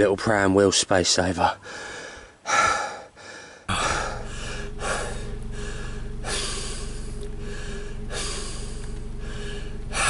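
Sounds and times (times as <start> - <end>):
loud breaths: 1.6 - 10.0
person sighing: 3.7 - 9.7
car engine drone from inside: 3.7 - 10.0.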